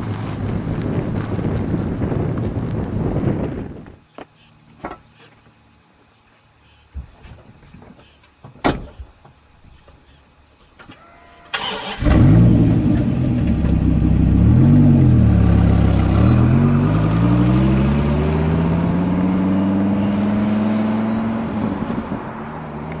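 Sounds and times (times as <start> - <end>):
sports car engine revving: 11.9 - 22.2.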